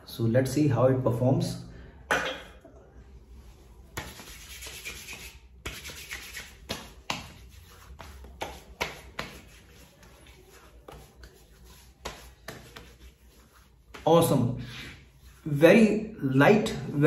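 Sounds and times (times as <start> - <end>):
palms rubbing skin: 3.5 - 14.1.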